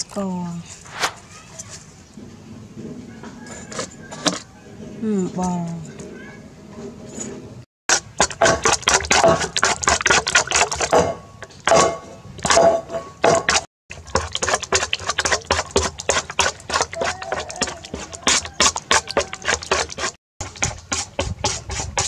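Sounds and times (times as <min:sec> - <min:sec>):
spoon beating eggs in metal bowl: 0:07.9 - 0:12.6, 0:13.3 - 0:22.0.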